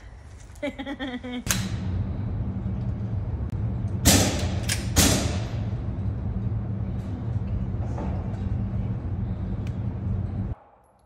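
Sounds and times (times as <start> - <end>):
steady low rumble: 0.0 - 11.0
pistol shots echoing indoors: 3.9 - 5.6.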